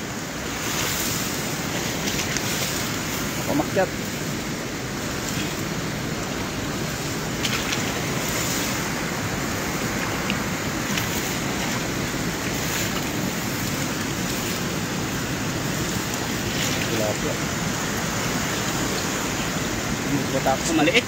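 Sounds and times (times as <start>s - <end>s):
grass rustling by hand: 0.0s - 21.0s.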